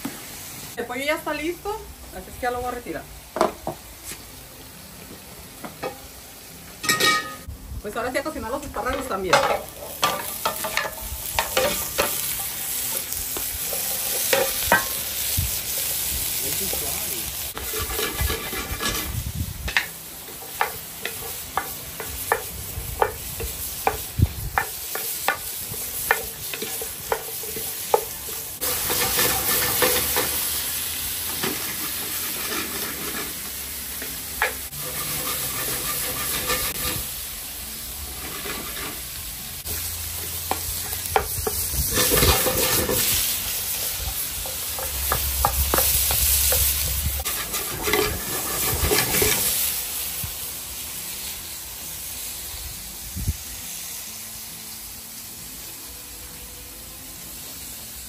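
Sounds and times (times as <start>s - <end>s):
vegetables sizzling in pans: 0.0s - 58.0s.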